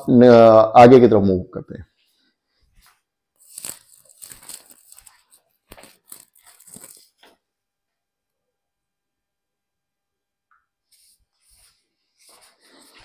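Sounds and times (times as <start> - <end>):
clothing rubbing on microphone: 2.0 - 7.3, 10.9 - 13.0.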